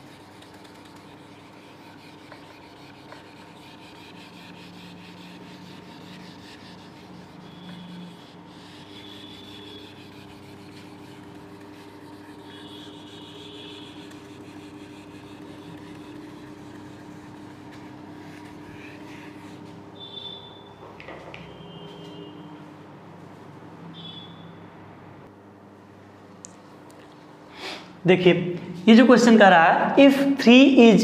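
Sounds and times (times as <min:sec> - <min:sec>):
duster rubbing on whiteboard: 0:00.0 - 0:19.8.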